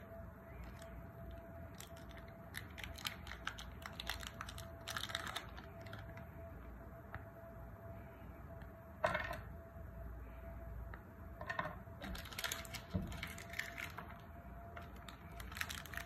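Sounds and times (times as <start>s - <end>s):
chocolate wrapper crinkling and tearing: 0.6s - 6.3s, 12.0s - 16.0s.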